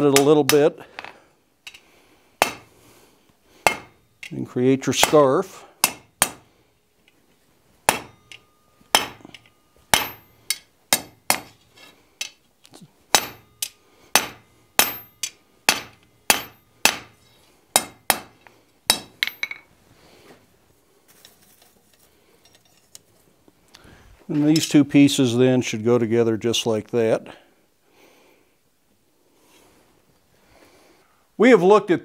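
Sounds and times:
hammer striking iron on anvil: 2.4s - 2.7s, 3.6s - 4.3s, 4.9s - 6.5s, 7.9s - 11.6s, 13.1s - 19.6s.

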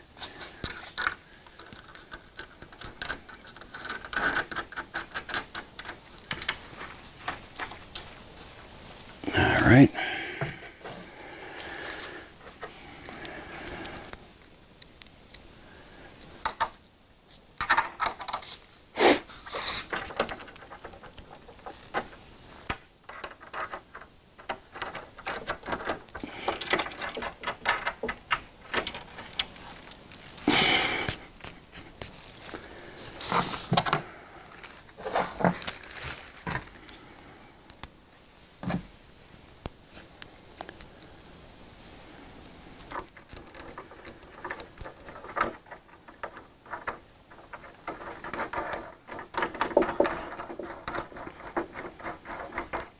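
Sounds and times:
metal washers and nuts clinking: 0.4s - 8.2s, 12.5s - 15.5s, 16.2s - 18.6s, 19.4s - 30.4s, 37.7s - 38.0s, 41.7s - 52.9s.

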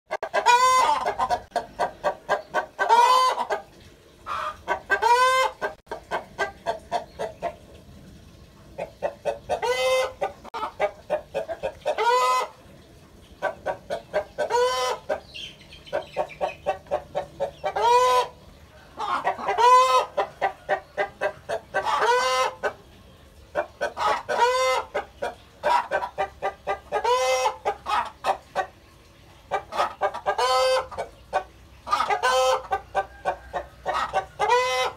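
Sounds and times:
chickens clucking: 0.1s - 34.9s
chicken drawn-out call: 0.2s - 1.4s, 2.8s - 3.6s, 4.3s - 5.8s, 9.0s - 12.6s, 14.2s - 15.2s, 15.9s - 22.7s, 23.6s - 25.0s, 26.7s - 28.7s, 29.5s - 31.1s, 31.9s - 34.9s.

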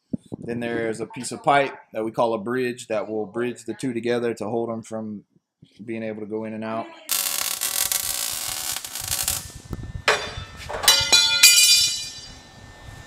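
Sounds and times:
welding arc crackling: 7.1s - 12.1s
sharp metallic clanks: 10.1s - 12.4s.

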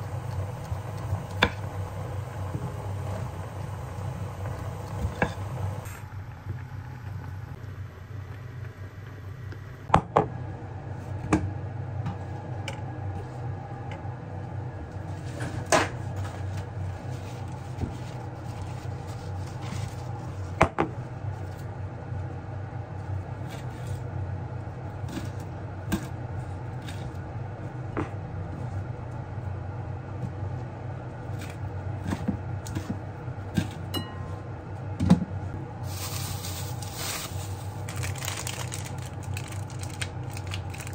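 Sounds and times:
steady low hum: 0.0s - 40.9s
glass bowl and utensils clinking: 33.9s - 34.5s.

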